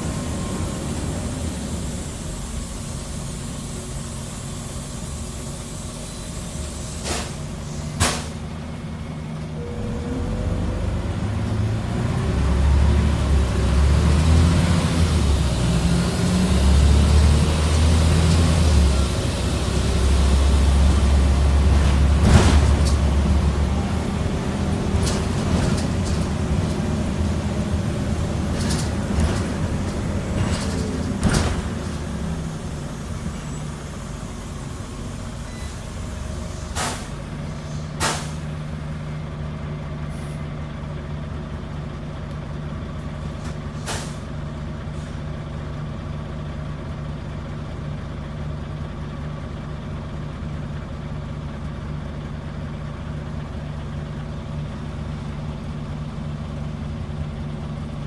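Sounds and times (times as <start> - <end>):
bus diesel engine: 0.0 - 58.0
air brake hisses: 1.5 - 8.4, 33.1 - 38.6, 40.1 - 40.5, 43.7 - 44.3.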